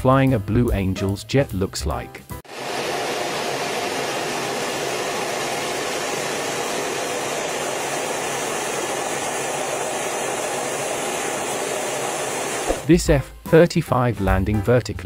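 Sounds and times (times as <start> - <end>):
jet roar in cockpit: 2.4 - 12.9.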